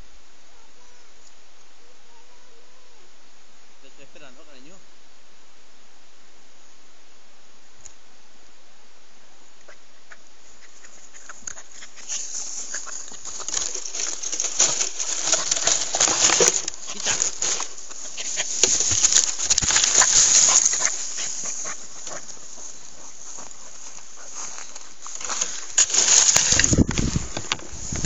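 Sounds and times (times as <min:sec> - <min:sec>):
dry grass and twigs rustling: 0:09.7 - 0:28.0.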